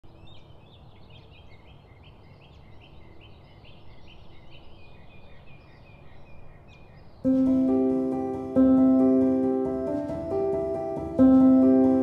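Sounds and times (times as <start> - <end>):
songbird chirping: 0.0 - 12.0.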